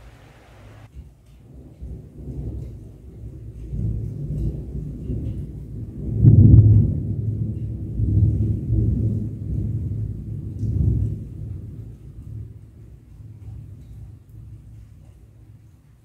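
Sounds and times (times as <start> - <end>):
thunder rolling: 1.5 - 14.9.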